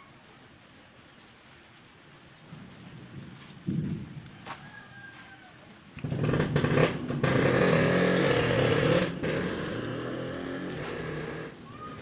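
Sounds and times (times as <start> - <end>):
motorcycle engine running: 6.0 - 11.6.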